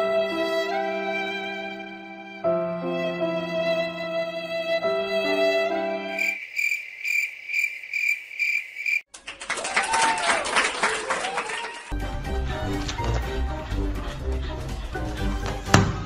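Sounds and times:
violin music: 0:00.0 - 0:06.2, 0:11.9 - 0:16.0
cricket chirping: 0:06.2 - 0:09.1.

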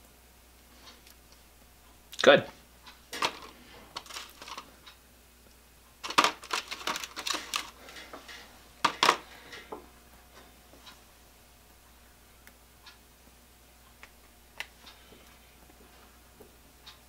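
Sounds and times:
small metal parts clinking: 0:03.2 - 0:04.6, 0:06.0 - 0:07.8.

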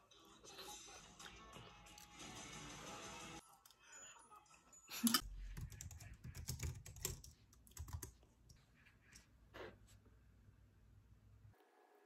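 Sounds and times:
computer keyboard typing: 0:05.6 - 0:08.2.

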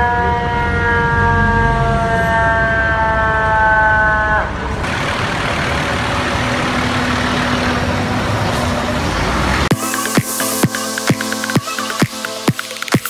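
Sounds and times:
fire engine air horn: 0:00.0 - 0:05.0
truck and traffic passing: 0:04.0 - 0:10.4.

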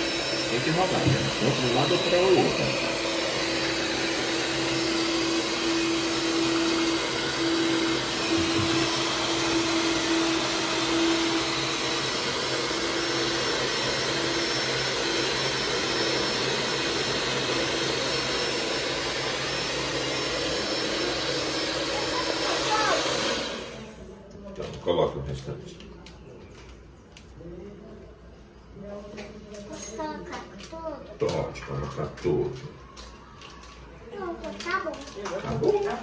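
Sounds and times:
stand mixer running: 0:00.0 - 0:24.0.

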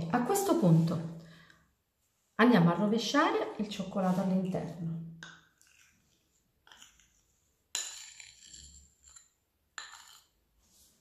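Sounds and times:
spoon scraping glass jar: 0:05.2 - 0:10.4.

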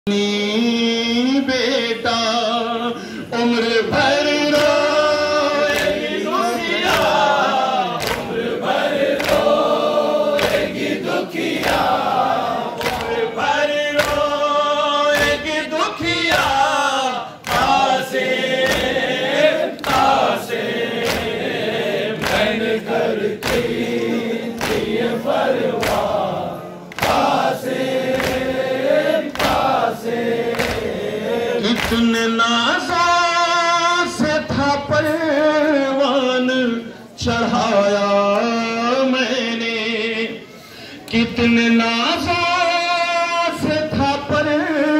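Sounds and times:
man singing lament over loudspeaker: 0:00.0 - 0:07.4, 0:13.2 - 0:18.2, 0:31.2 - 0:44.9
mourners singing along: 0:00.1 - 0:44.9
rhythmic chest-beating slaps: 0:03.9 - 0:33.2.

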